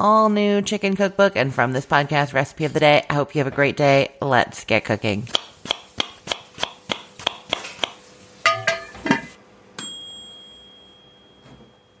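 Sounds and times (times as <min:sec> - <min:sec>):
bell ding: 0:09.8 - 0:12.0.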